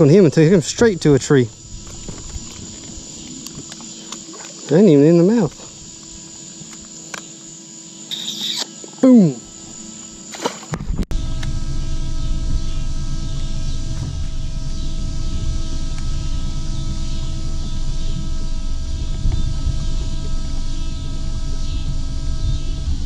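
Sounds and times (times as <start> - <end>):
electric trolling motor whine: 0.0 - 23.0
low rumble: 11.0 - 23.0.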